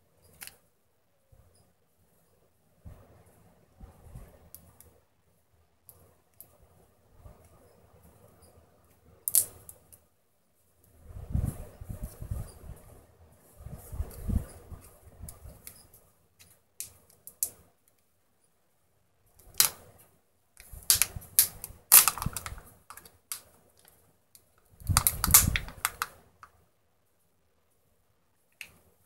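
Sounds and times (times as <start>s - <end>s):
plastic wrapper crinkling: 20.6s - 23.9s, 24.8s - 26.2s.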